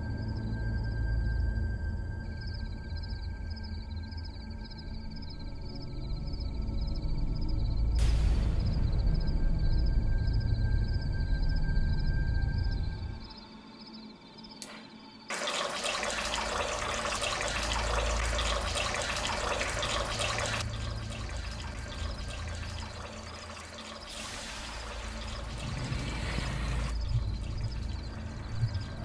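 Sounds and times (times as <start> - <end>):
water running from tap into sink: 14.6 - 28.2.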